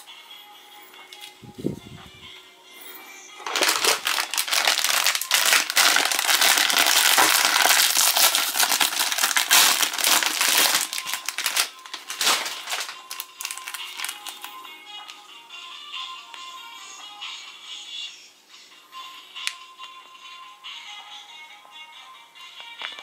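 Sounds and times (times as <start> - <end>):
plastic wrapper crinkling: 3.4 - 15.2.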